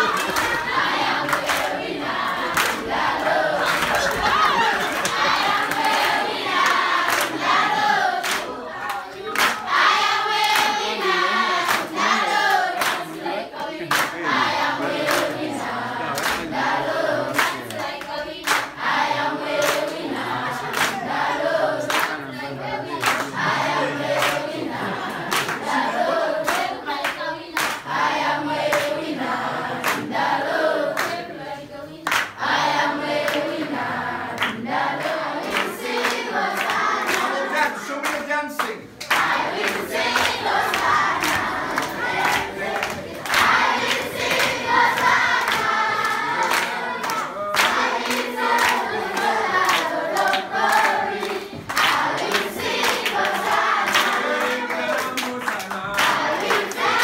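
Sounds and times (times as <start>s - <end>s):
children singing in chorus: 0.0s - 37.5s, 39.1s - 55.0s, 56.0s - 57.0s
hands clapping in time: 13.9s - 14.2s, 34.4s - 57.0s.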